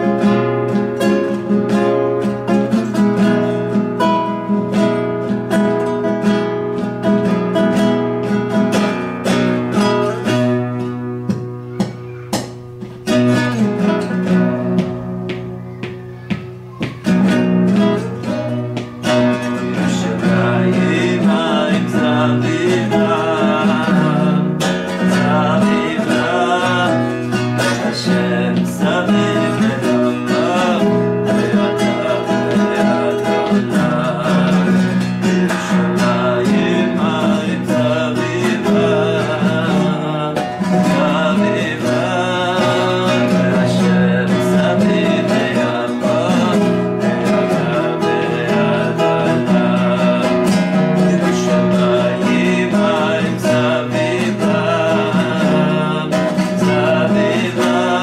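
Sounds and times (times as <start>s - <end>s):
acoustic guitar strumming: 0.0s - 58.0s
man singing: 8.5s - 11.0s, 16.2s - 58.0s.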